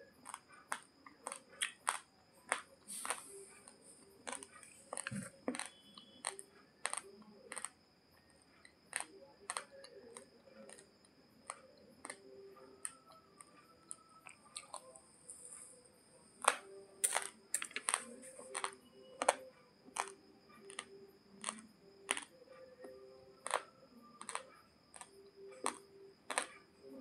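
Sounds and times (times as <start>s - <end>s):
rice grains crunching when chewed: 0.2s - 7.8s, 8.9s - 10.9s, 13.9s - 15.6s, 16.4s - 22.3s, 24.2s - 26.6s.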